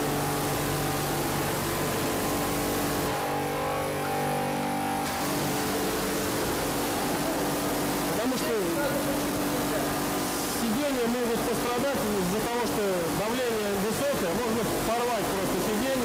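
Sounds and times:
pump humming: 0:00.0 - 0:16.0
water jet hissing: 0:05.0 - 0:16.0.

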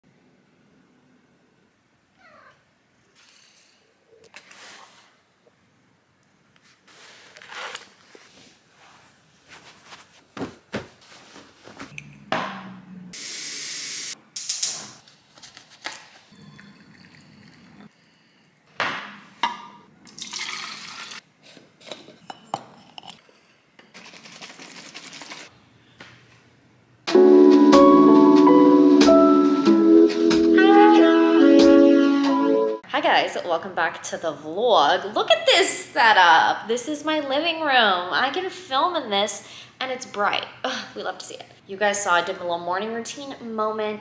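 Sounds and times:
water running and pouring: 0:16.4 - 0:17.9, 0:20.1 - 0:21.2.

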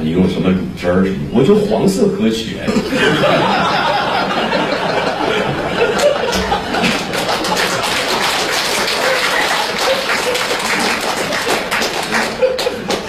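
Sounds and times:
audience laughter: 0:02.7 - 0:13.0
audience applause: 0:03.3 - 0:13.0.

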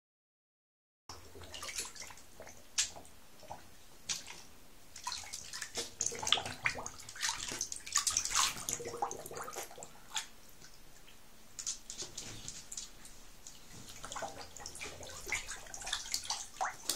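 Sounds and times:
dog blowing bubbles in water: 0:08.1 - 0:10.0.

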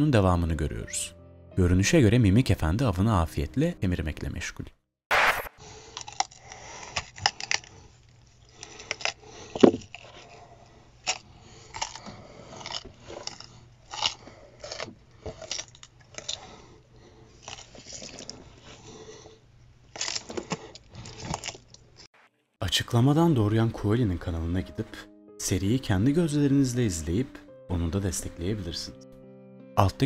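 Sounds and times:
wet chewing and crunching: 0:05.8 - 0:22.1.

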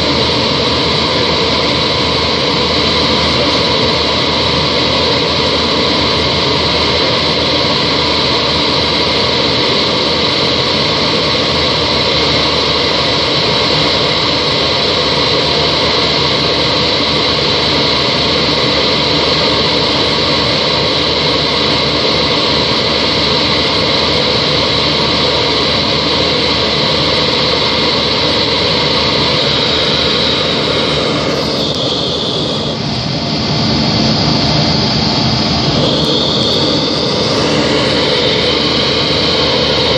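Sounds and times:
airliner cabin jet engine rush: 0:00.0 - 0:39.9
high turbine whistle: 0:00.0 - 0:39.9.

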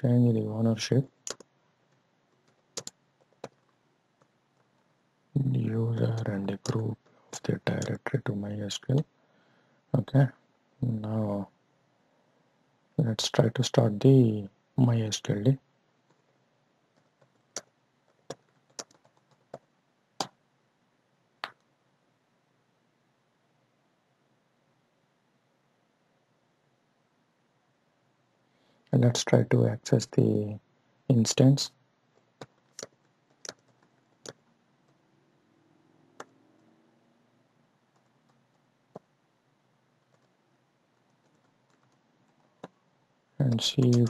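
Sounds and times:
keyboard keystroke clicks: 0:01.3 - 0:01.5, 0:02.5 - 0:03.6, 0:43.5 - 0:44.0
keyboard keystrokes: 0:02.4 - 0:03.7, 0:07.4 - 0:08.0, 0:17.0 - 0:19.6, 0:32.4 - 0:34.4, 0:43.5 - 0:44.0.

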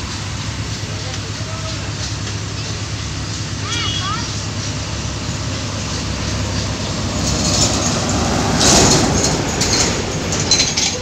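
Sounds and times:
low engine hum: 0:00.0 - 0:11.0
vehicle passing: 0:03.6 - 0:11.0.

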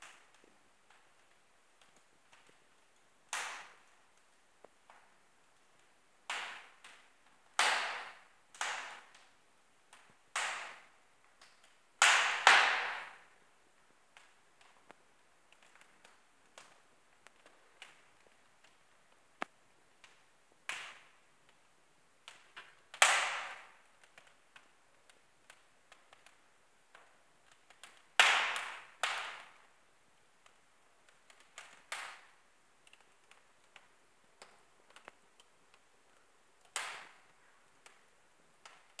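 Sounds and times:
wood fire crackling: 0:00.0 - 0:39.0
sharp fire pops: 0:03.3 - 0:04.0, 0:06.3 - 0:09.3, 0:22.2 - 0:24.7, 0:25.5 - 0:29.7, 0:30.4 - 0:33.8, 0:36.7 - 0:37.2.

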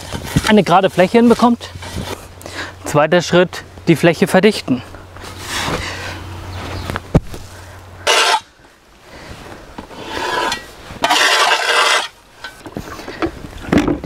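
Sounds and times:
shovel scraping concrete: 0:08.0 - 0:08.5, 0:10.0 - 0:12.2.

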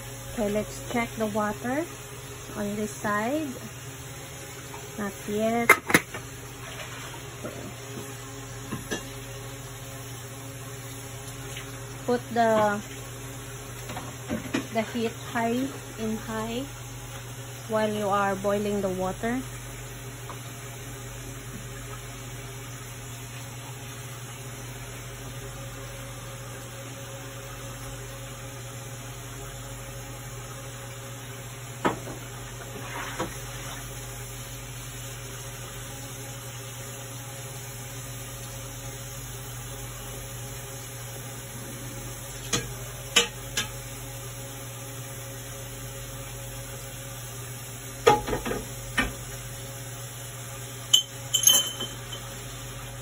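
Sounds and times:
low hum of gas burner: 0:00.0 - 0:53.0
metal pots and utensils clinking: 0:51.0 - 0:52.3.

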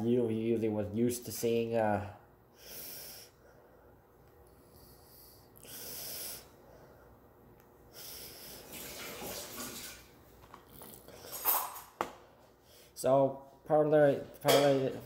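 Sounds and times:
man breathing: 0:02.5 - 0:08.7, 0:12.5 - 0:13.0.

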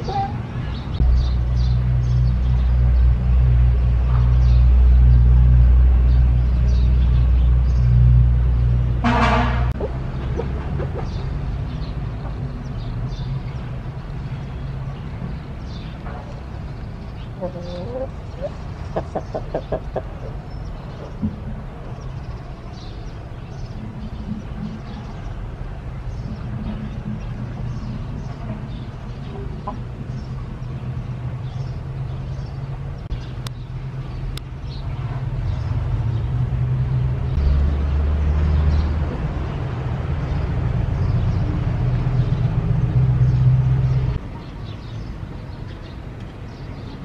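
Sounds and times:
rooster clucking: 0:09.7 - 0:11.1, 0:17.4 - 0:20.4.

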